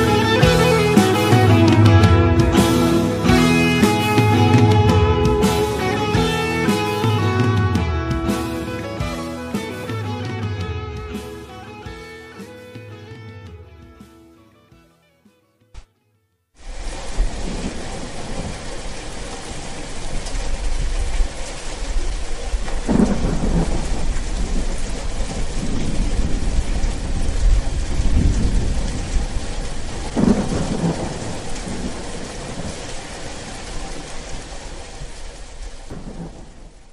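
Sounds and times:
heavy rain: 0.0s - 13.2s, 16.6s - 36.9s
rolling thunder: 16.8s - 35.2s, 35.9s - 36.9s.

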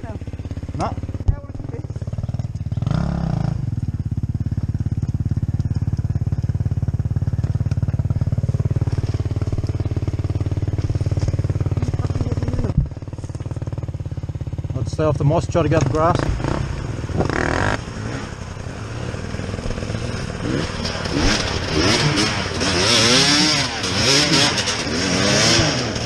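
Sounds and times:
dirt bike engine idling: 0.0s - 26.0s.

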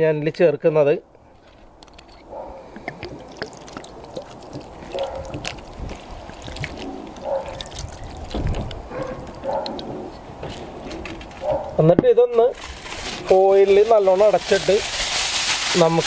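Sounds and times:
wine pouring and splashing: 2.6s - 9.5s.

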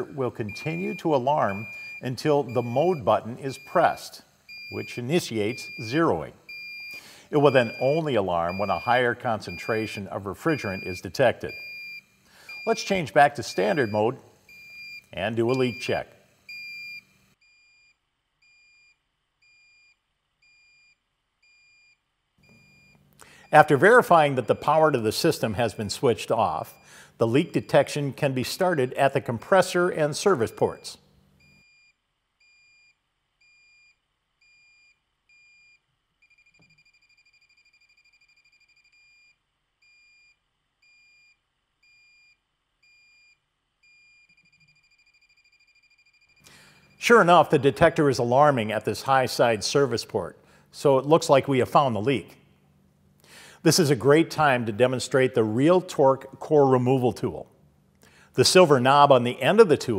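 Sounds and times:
leak detector beeping: 0.0s - 28.1s, 30.4s - 47.8s.

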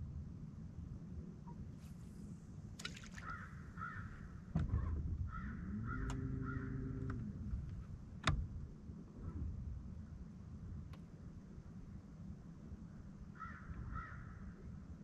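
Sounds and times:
bird cawing: 3.1s - 4.4s, 5.3s - 7.2s, 13.4s - 14.5s
low hum varying in pitch: 5.5s - 8.0s.

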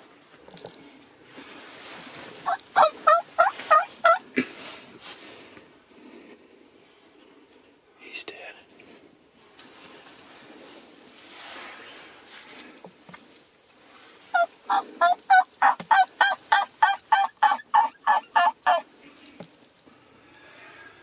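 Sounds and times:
turkey yelping: 2.4s - 4.2s, 14.3s - 18.9s.

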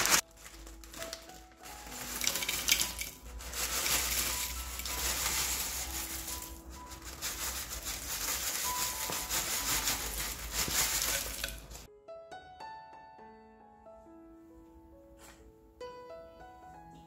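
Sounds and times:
crisp pieces pouring into bowl: 0.0s - 11.9s
piano music: 0.0s - 17.0s
soft music: 0.0s - 17.0s.

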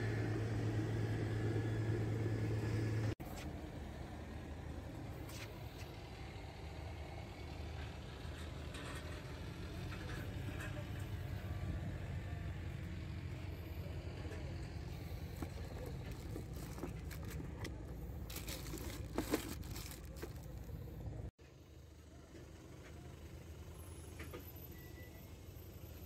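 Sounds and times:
rustling and knocks of handling: 15.0s - 20.7s.

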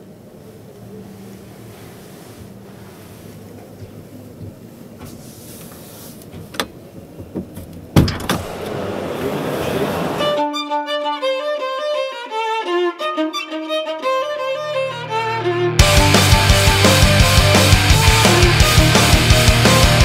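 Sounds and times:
sudden loud hit: 8.0s - 10.4s
bowed string melody: 8.5s - 20.0s.

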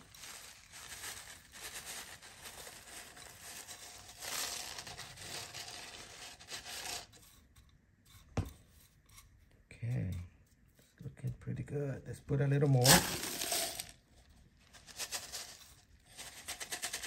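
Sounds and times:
grains of soil trickling into pot: 0.0s - 7.2s, 12.7s - 14.0s.

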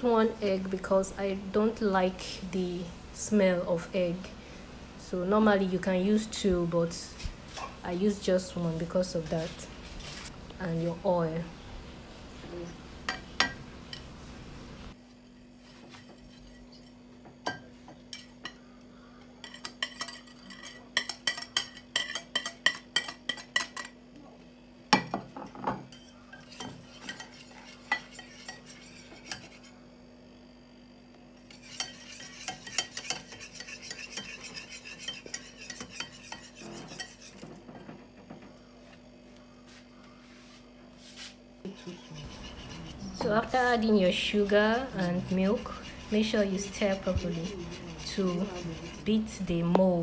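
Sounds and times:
faint steady hum: 0.0s - 50.0s
whisk scraping in plastic bowl: 31.5s - 37.4s, 41.7s - 49.4s.

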